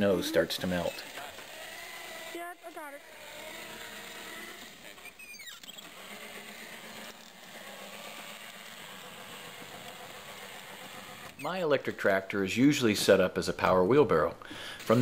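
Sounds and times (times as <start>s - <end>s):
high gliding squeak: 0.0s - 8.0s, 11.3s - 11.8s
electric tractor humming: 0.0s - 11.7s.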